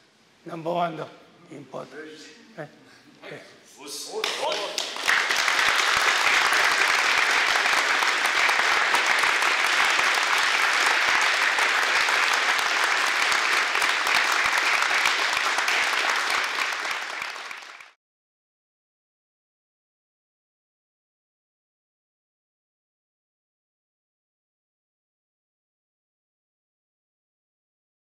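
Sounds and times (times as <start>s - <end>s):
crowd applauding: 4.1s - 18.0s.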